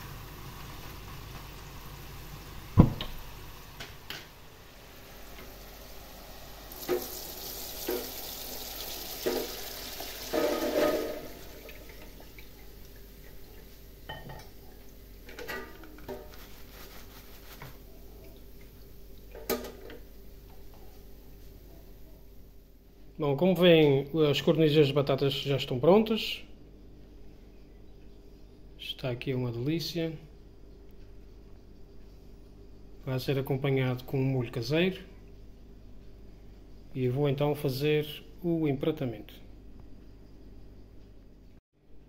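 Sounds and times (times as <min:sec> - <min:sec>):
oil pouring hiss: 0:04.6 - 0:11.8
pan and utensil clatter: 0:10.3 - 0:11.6, 0:15.3 - 0:17.7.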